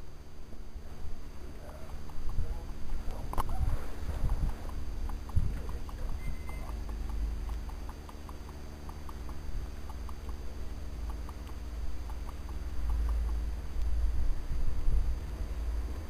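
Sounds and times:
wind rumble on microphone: 2.1 - 6.8, 13.8 - 16.0.

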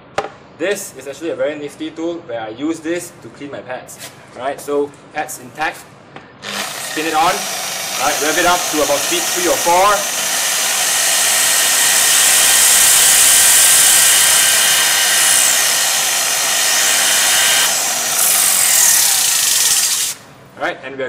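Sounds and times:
rotary polisher whirring: 6.4 - 20.2.

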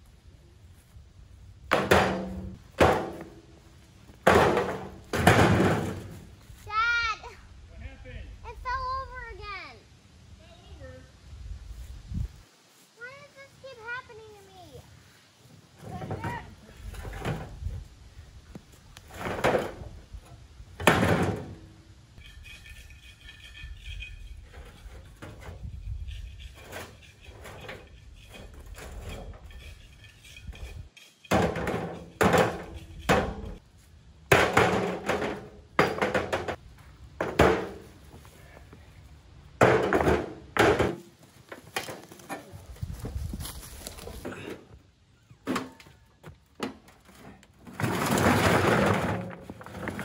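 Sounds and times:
stones hitting metal wheelbarrow: 1.7 - 6.4, 15.8 - 17.7, 19.1 - 33.6, 34.2 - 36.6, 37.2 - 38.2, 39.6 - 42.6, 46.5 - 50.0.

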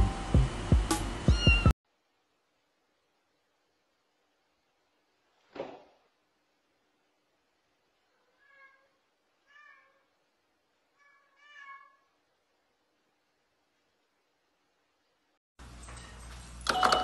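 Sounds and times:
cat meowing faintly: 8.0 - 10.2, 10.9 - 12.2.

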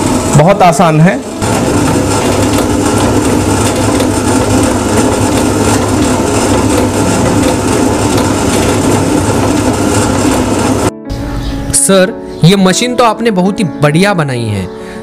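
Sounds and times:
machine motor hum: 0.0 - 10.9
rough mechanical noise: 0.0 - 10.9.

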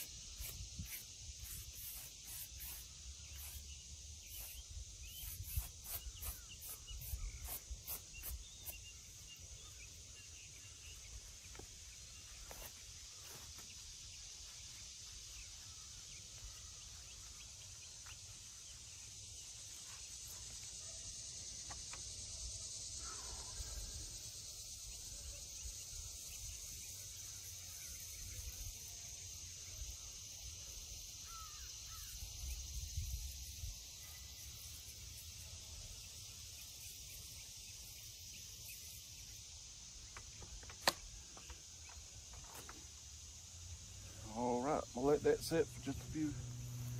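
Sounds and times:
brush scraping on stone: 0.0 - 8.9
high insect drone: 0.0 - 46.9
bird calls: 4.3 - 13.8.

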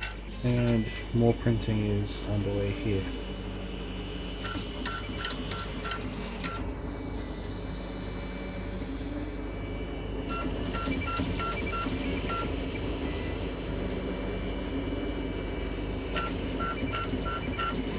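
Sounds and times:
cooling fans humming: 0.0 - 17.9
stepper motor pitched notes: 0.0 - 17.9.

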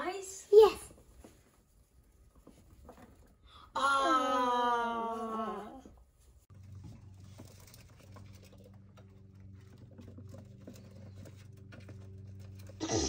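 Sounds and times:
claws scrabbling on plastic: 6.5 - 12.8.

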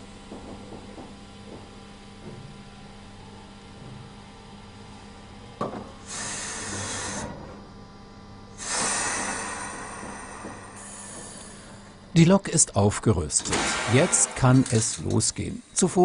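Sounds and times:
electrical hum: 0.0 - 16.0
compressed air hissing: 6.0 - 7.4, 8.6 - 12.0.

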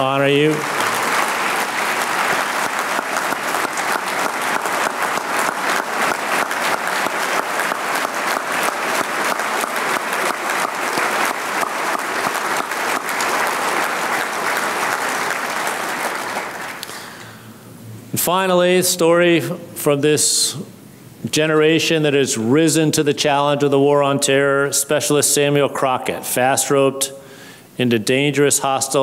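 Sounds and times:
audience applauding: 0.0 - 17.2.

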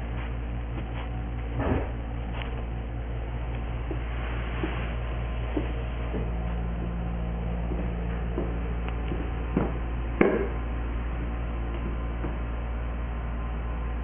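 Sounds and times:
low hum: 0.0 - 14.0
loud knock: 9.6 - 10.6.

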